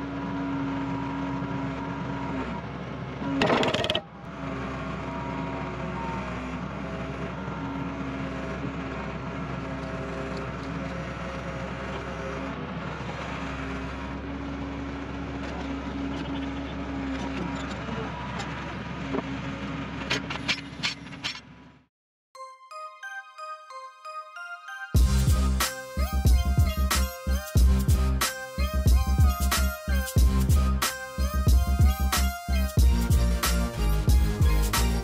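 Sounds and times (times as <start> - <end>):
diesel engine running steadily: 0.0 - 21.9, 25.0 - 35.0.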